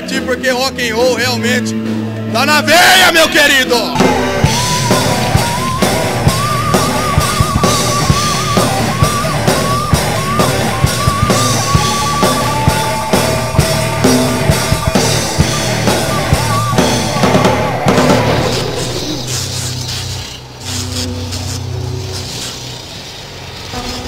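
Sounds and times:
drum kit beating: 3.8 - 19.7
electric guitar: 3.9 - 19.5
high wavering melody: 4.0 - 22.4.

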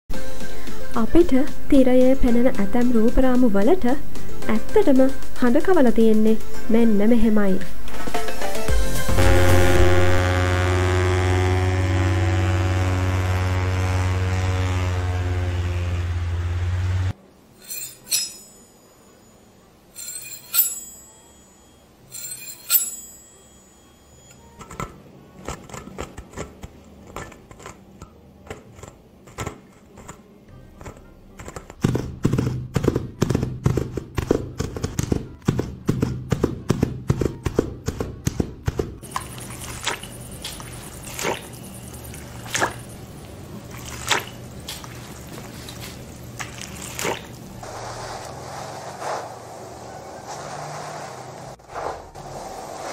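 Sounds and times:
desk fan buzzing drone: 8.7 - 31.4, 39.0 - 52.9
scraping strokes: 17.6 - 18.7, 20.0 - 21.1, 22.1 - 23.2, 43.7 - 52.9.

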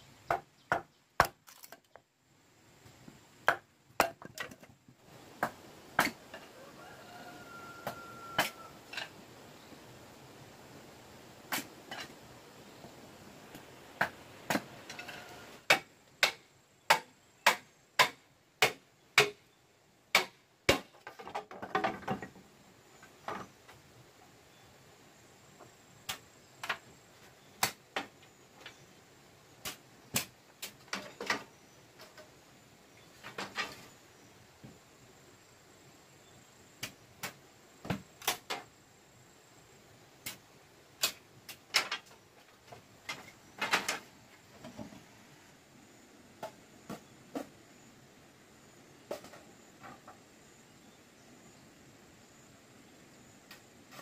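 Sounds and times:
blade chopping bamboo: 15.7 - 19.4, 20.1 - 20.9.

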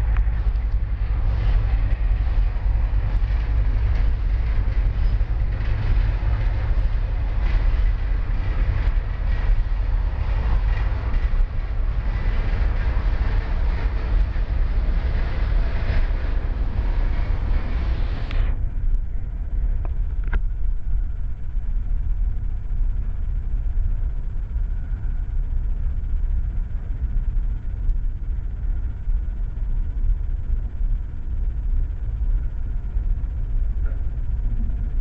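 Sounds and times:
freight train wheels rumbling: 0.0 - 26.9.

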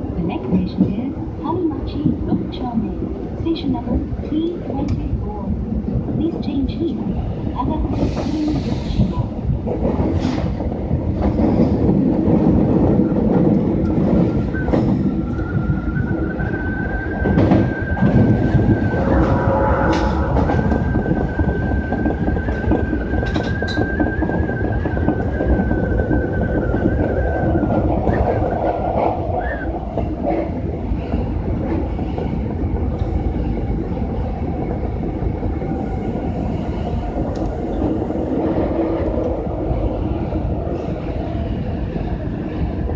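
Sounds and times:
subway train rumble: 0.0 - 42.9.

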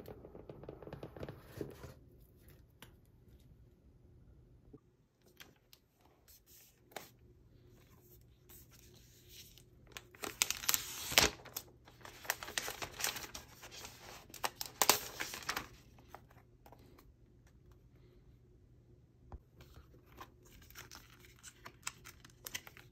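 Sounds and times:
plastic wrap crinkling: 9.9 - 16.2.

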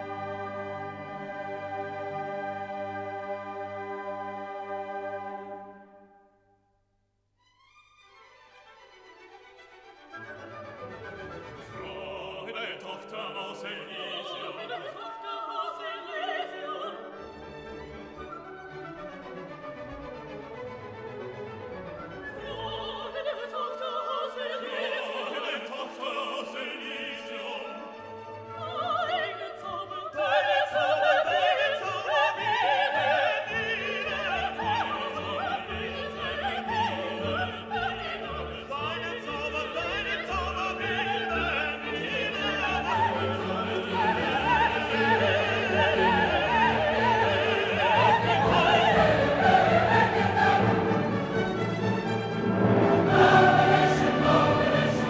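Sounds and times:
orchestral music: 0.0 - 6.4, 7.5 - 55.0
operatic singing: 11.1 - 18.6, 22.0 - 55.0.

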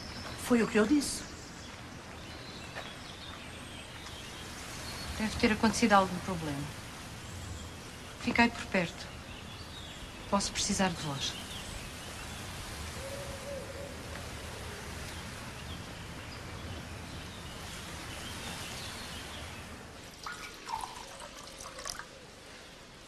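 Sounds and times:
running splashing water: 19.3 - 22.4.

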